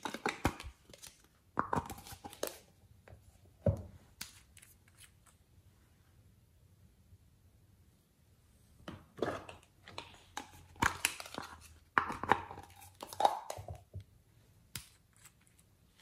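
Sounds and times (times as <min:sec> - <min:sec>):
plastic containers clicking and knocking: 0:08.9 - 0:14.0.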